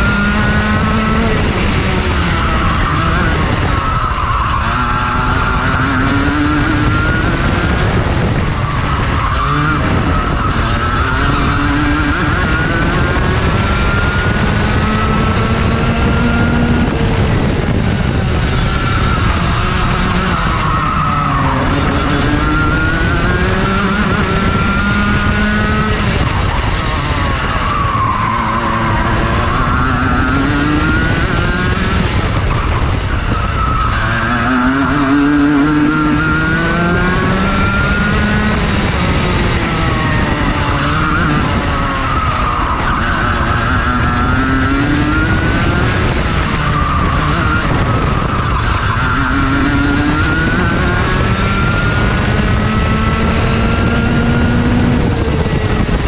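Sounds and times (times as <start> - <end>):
kart engine racing: 0.0 - 56.0
wind rushing on microphone: 0.0 - 56.0.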